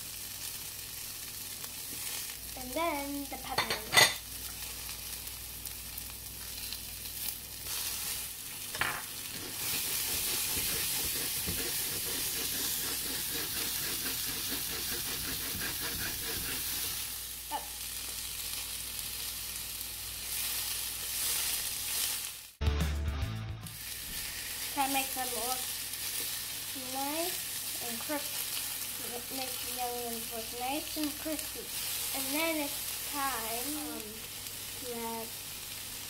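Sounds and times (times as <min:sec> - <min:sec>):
vegetables sizzling in a pan: 0:00.0 - 0:22.6, 0:23.7 - 0:36.0
spatula stirring in a pan: 0:06.0 - 0:17.3, 0:20.2 - 0:22.4, 0:23.8 - 0:35.8.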